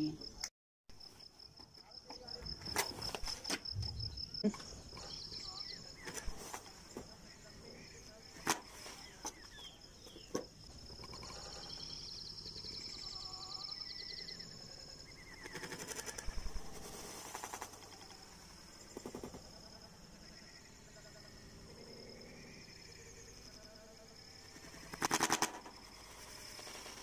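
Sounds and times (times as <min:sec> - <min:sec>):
rapid pulsing rattle: 0:15.3 - 0:19.8, 0:24.2 - 0:27.0.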